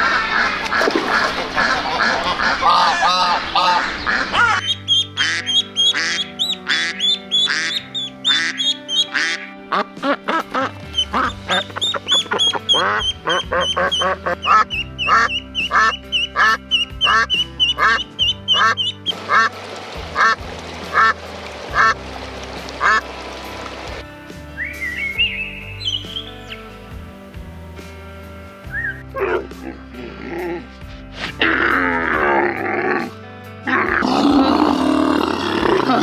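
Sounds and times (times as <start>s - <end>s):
duck quacking: 0.0s - 22.0s, 22.8s - 23.1s
background music: 0.0s - 36.0s
ducklings peeping: 1.6s - 9.5s, 10.6s - 19.5s, 25.0s - 26.6s.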